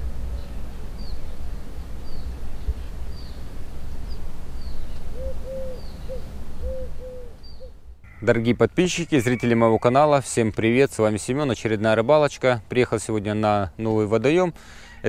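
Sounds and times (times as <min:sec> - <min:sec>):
small bird chirping: 0:02.0 - 0:08.3
dove cooing: 0:05.1 - 0:08.3.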